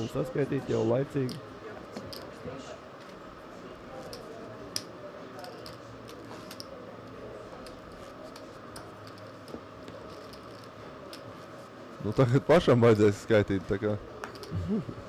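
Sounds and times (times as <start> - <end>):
room hum: 0.0 - 15.0
poker chips clicking: 2.0 - 2.4, 4.0 - 11.3, 14.2 - 14.6.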